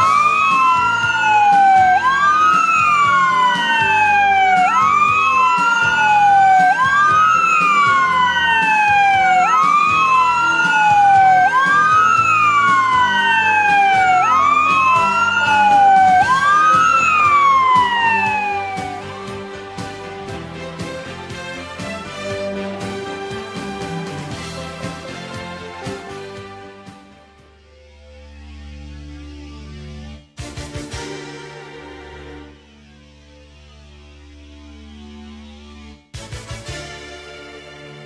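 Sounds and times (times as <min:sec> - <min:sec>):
fire truck sirens wailing: 0:00.0 - 0:26.7.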